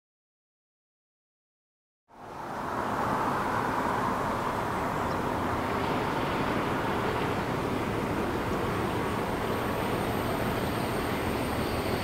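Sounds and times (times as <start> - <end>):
distant diesel locomotive engines: 2.1 - 12.0.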